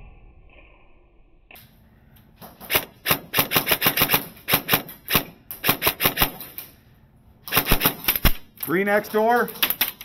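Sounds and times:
airsoft guns firing bursts: 2.6 - 6.6, 7.5 - 8.5.

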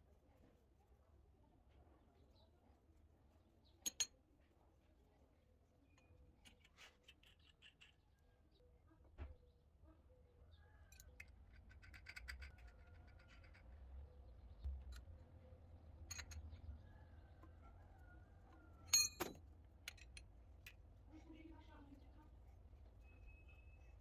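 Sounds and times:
sharp ringing metal clink: 18.9 - 19.4.

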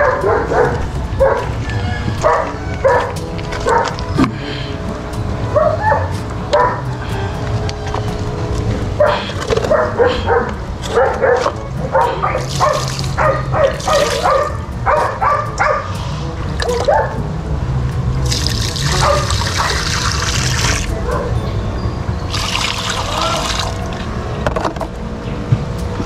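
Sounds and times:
dogs barking: 0.0 - 4.8, 5.4 - 7.3, 8.7 - 17.4, 18.5 - 21.6
water pouring through a net: 12.4 - 13.2, 13.8 - 14.3, 18.2 - 20.9, 22.3 - 24.0.

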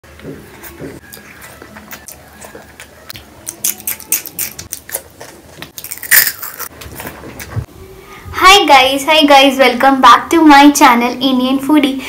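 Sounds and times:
wet chewing: 0.1 - 7.5.

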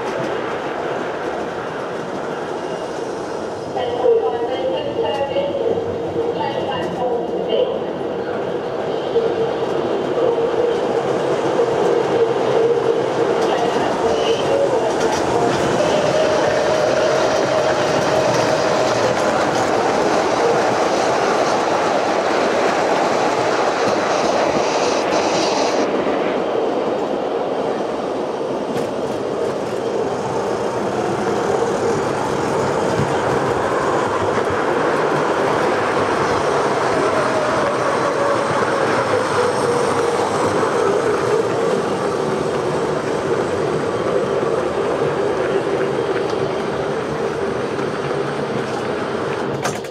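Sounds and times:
model train wheels clattering: 48.7 - 49.9.

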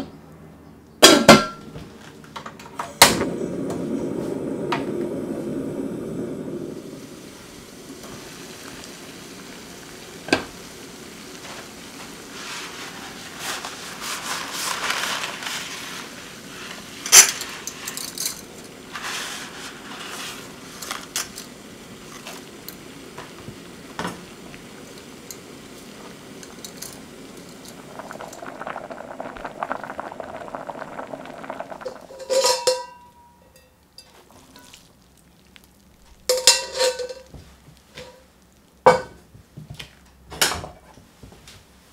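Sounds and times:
water boiling in a saucepan: 2.7 - 41.9
metal pan clinks: 32.2 - 33.7
tongs clinking against pot: 32.2 - 34.8.

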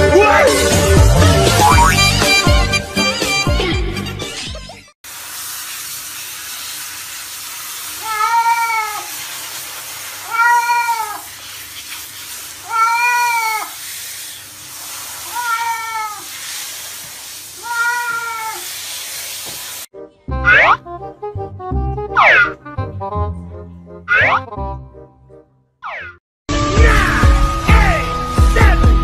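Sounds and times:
shower spraying water: 5.0 - 19.9
cat meowing: 8.0 - 9.1, 10.2 - 11.3, 12.6 - 13.8, 15.3 - 16.3, 17.6 - 18.6.

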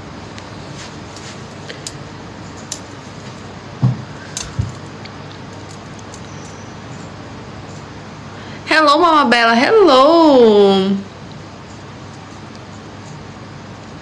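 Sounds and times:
steady background hiss: 0.0 - 14.0
dull knocks: 3.8 - 4.8.

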